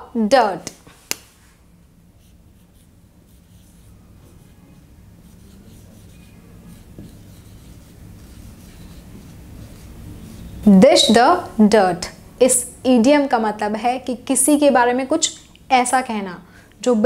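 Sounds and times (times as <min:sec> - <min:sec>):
low room hum: 0:00.0 - 0:17.0
marker writing on whiteboard: 0:02.2 - 0:11.2.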